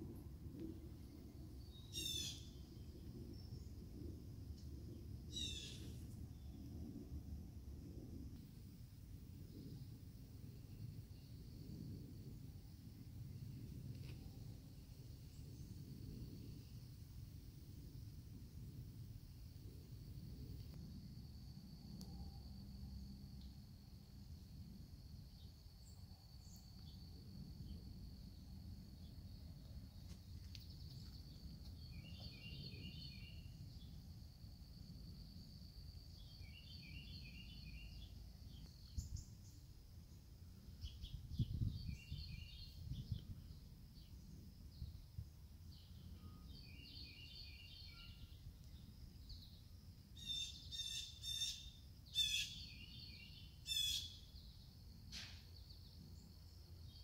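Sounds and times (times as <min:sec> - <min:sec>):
faint low rumble: 0:00.0 - 0:46.6
songbirds chirping: 0:28.3 - 0:34.0, 0:36.0 - 0:40.2.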